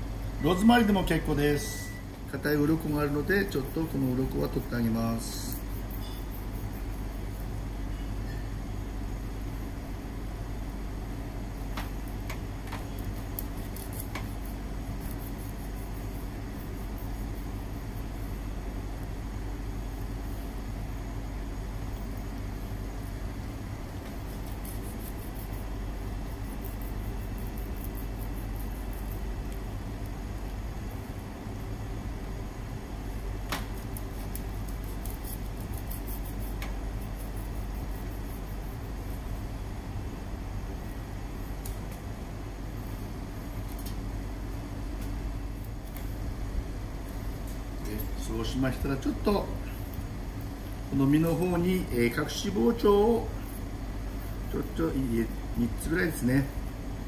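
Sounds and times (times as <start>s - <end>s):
steady low hum: 0.0s - 57.0s
knife scraping fish: 33.9s - 38.8s.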